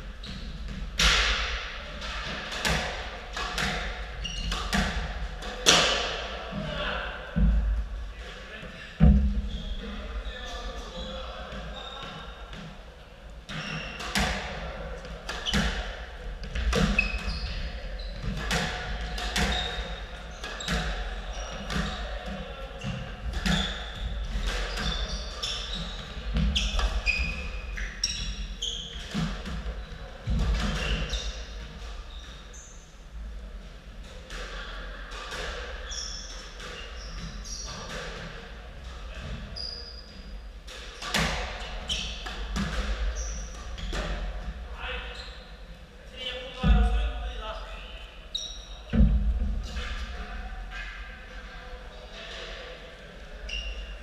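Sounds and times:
squash ball hitting rackets and walls: 0:00.2 - 0:06.4, 0:13.5 - 0:32.0, 0:40.1 - 0:44.6
shoes squeaking on wooden floor: 0:03.6 - 0:04.9, 0:13.5 - 0:14.3, 0:16.6 - 0:18.6, 0:19.3 - 0:22.2, 0:22.8 - 0:32.9, 0:41.0 - 0:44.1.

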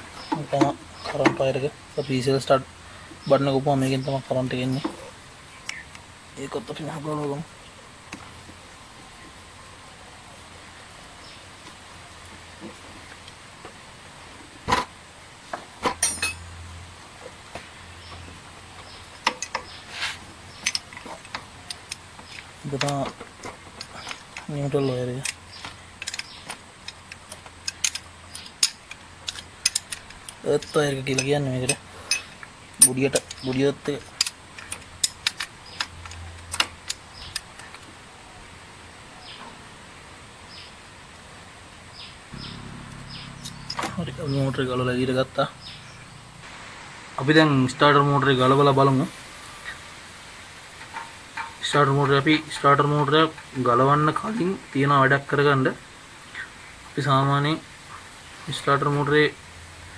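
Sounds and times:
metallic clicks of engine parts: 0:15.8 - 0:16.5, 0:18.0 - 0:38.0, 0:42.4 - 0:44.5, 0:50.7 - 0:54.8.

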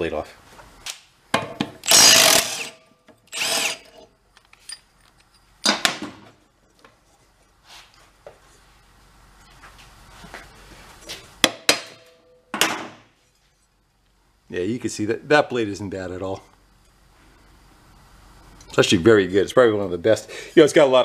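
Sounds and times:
tool working on blade bolt: 0:01.8 - 0:05.8.

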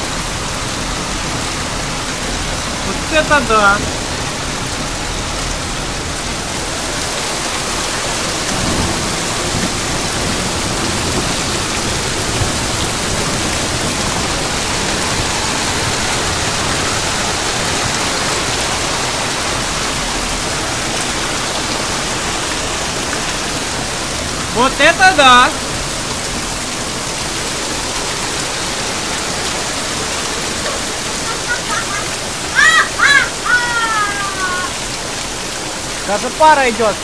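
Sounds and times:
rain and hail on metal roofs: 0:00.0 - 0:37.0.

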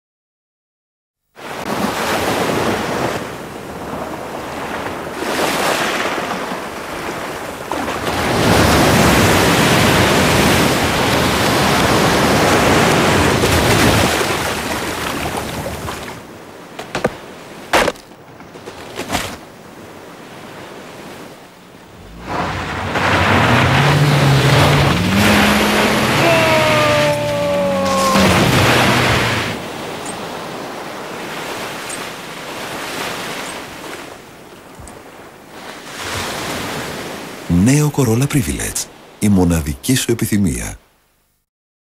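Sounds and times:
surf breaking: 0:01.7 - 0:19.4, 0:21.8 - 0:31.8.

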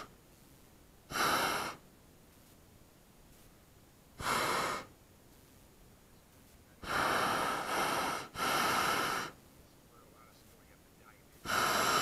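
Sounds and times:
propane burner hissing: 0:01.1 - 0:01.8, 0:04.2 - 0:04.9, 0:06.8 - 0:09.4, 0:11.4 - 0:12.0.

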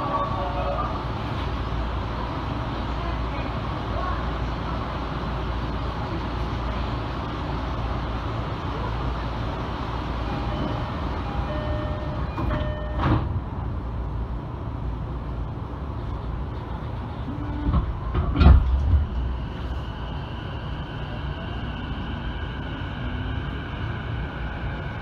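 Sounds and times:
train interior hum: 0:00.0 - 0:25.0
short beep-like tones: 0:10.5 - 0:13.2.

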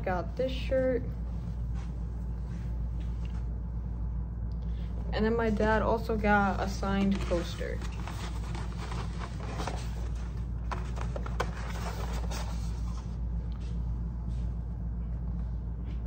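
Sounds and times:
low hum: 0:00.0 - 0:16.0
paper rustling and crinkling: 0:06.6 - 0:13.2.

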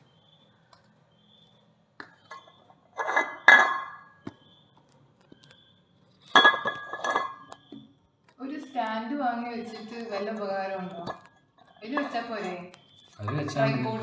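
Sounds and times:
metal clinking and clattering: 0:06.2 - 0:07.6.

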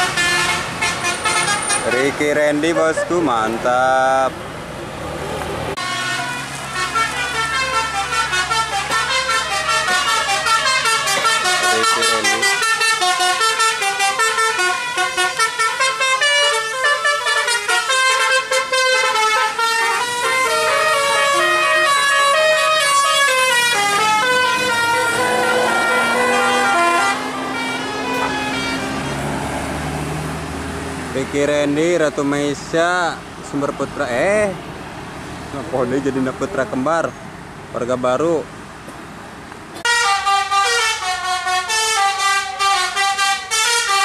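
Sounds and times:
bus horns playing melodies: 0:00.0 - 0:04.2, 0:05.7 - 0:30.4, 0:39.8 - 0:44.0
bus engine running: 0:00.0 - 0:31.4.

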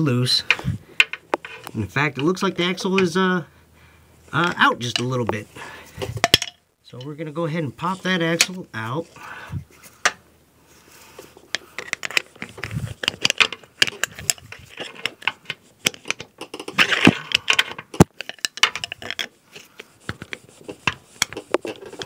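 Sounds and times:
metal clicks and rattles: 0:11.6 - 0:19.3.

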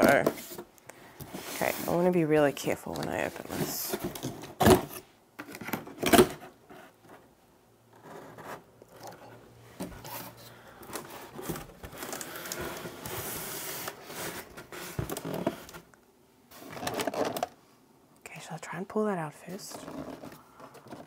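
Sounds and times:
cardboard scraping and rustling: 0:00.0 - 0:07.3, 0:07.9 - 0:15.9, 0:16.5 - 0:17.6.

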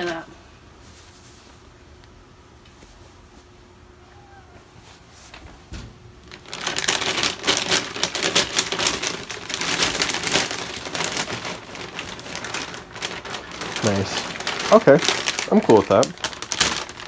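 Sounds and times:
plastic bag crinkling: 0:06.2 - 0:17.0.

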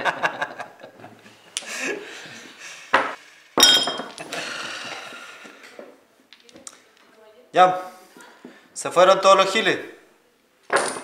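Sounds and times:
glass knocking on hard surface: 0:03.0 - 0:04.2.

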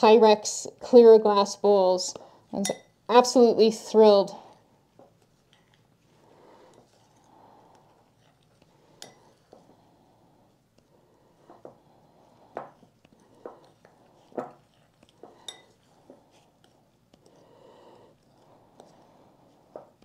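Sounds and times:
spoon clinking against glass: 0:02.6 - 0:02.9, 0:15.4 - 0:15.8
spoon scraping powder in bowl: 0:05.1 - 0:20.0.

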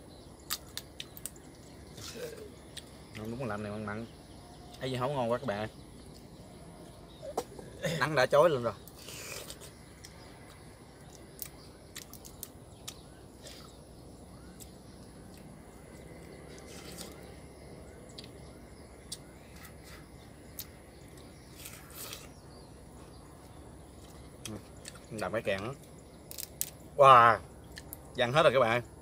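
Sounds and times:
low background noise: 0:00.0 - 0:29.0
crab shell cracking: 0:24.4 - 0:26.8.

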